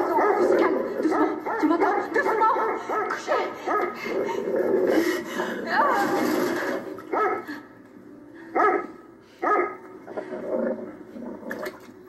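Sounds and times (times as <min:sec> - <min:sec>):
dog barking: 0:00.0 - 0:04.0, 0:07.1 - 0:07.6, 0:08.6 - 0:09.8.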